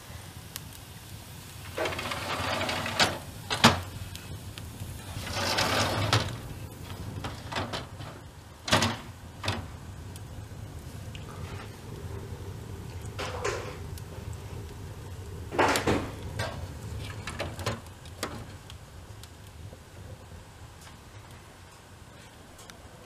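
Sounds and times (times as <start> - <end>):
metal doors scraping in track: 1.7 - 3.8, 5.0 - 9.7.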